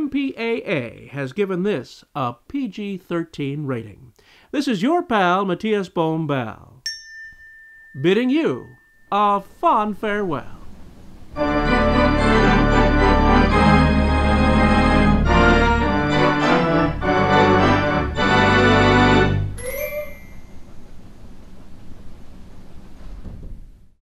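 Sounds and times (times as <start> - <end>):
organ music chords: 8.0 - 20.2.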